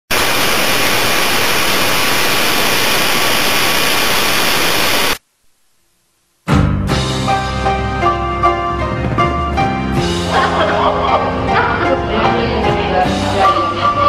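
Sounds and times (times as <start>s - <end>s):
white-noise static hiss: 0.1s - 6.6s
music: 6.4s - 14.0s.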